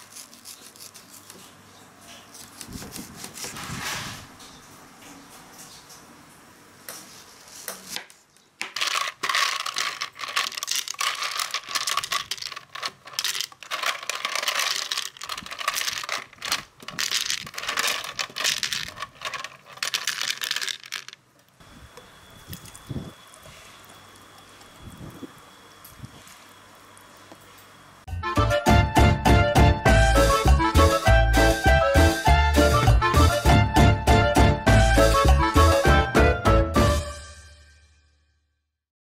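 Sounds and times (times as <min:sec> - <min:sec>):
ice cubes clattering in blender: 0:08.6 - 0:21.2.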